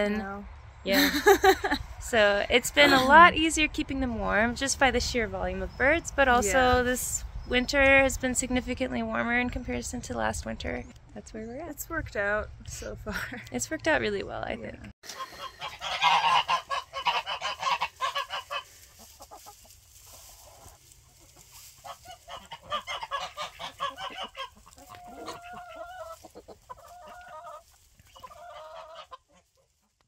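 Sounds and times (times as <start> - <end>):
chickens clucking: 14.6 - 30.0
geese honking: 15.1 - 29.4.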